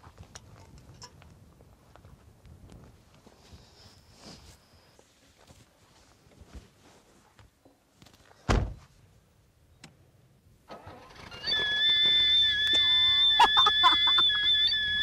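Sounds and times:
shrill exhaust whistle: 0:11.1 - 0:15.0.

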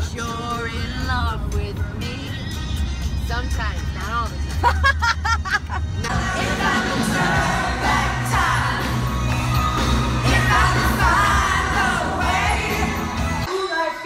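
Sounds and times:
crowd singing along: 0:06.0 - 0:13.5
live concert music with heavy bass: 0:06.1 - 0:14.0.

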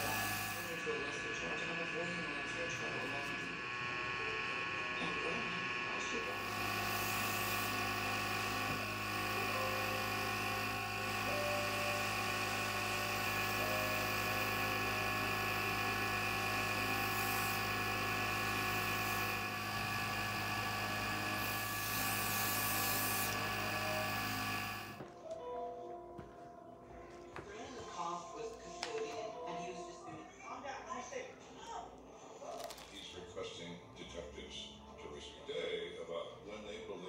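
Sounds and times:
airbrush spraying hiss: 0:00.0 - 0:00.7, 0:21.5 - 0:24.8
airbrush compressor motor hum: 0:00.0 - 0:25.0.

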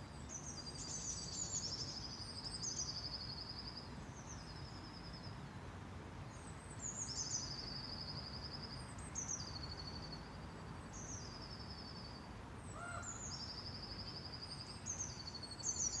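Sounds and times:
songbird singing trills: 0:00.2 - 0:05.4, 0:06.3 - 0:16.0
lower bird call: 0:12.7 - 0:13.5.

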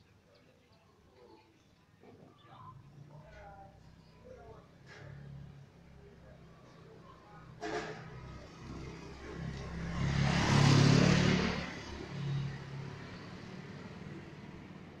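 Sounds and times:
vehicle passing by: 0:07.8 - 0:15.0.

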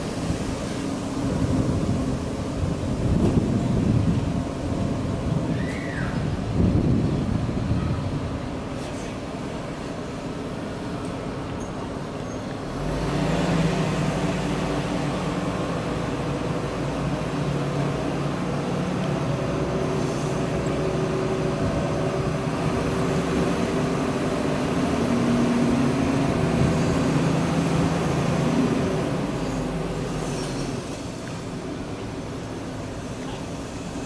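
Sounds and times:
diesel engine running at high revs: 0:00.0 - 0:05.5, 0:12.5 - 0:34.0.

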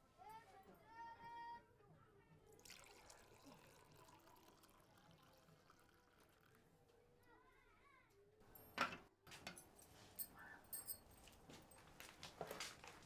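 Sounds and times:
liquid pouring and sloshing: 0:02.6 - 0:06.8.

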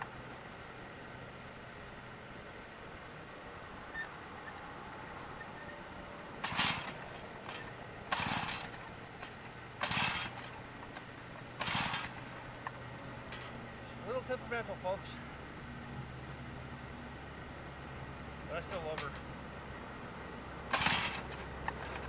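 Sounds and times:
engine turning over: 0:05.1 - 0:13.7, 0:20.6 - 0:22.0
starter cord pulls: 0:05.8 - 0:13.6, 0:20.7 - 0:22.0.

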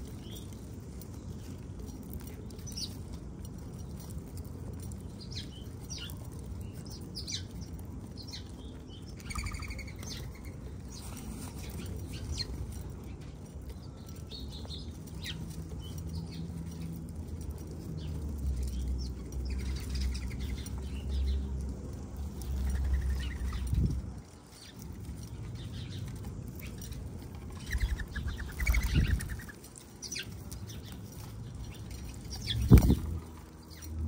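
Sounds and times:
birds chirping: 0:00.0 - 0:34.0
light pattering: 0:00.0 - 0:34.0
wing flutters: 0:32.0 - 0:33.4.

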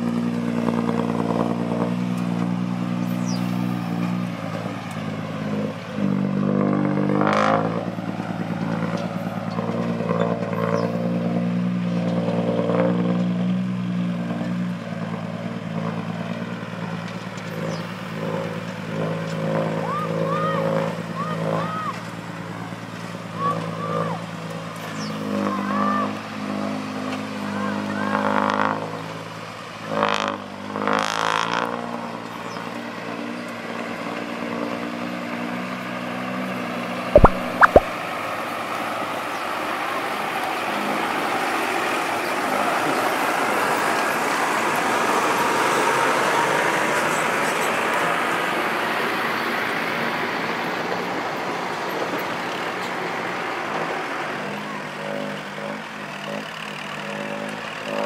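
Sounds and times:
diesel engines running: 0:00.0 - 0:31.2, 0:31.8 - 0:58.0
sharp knocks: 0:37.2 - 0:37.9
steady rushing noise: 0:37.2 - 0:37.9.

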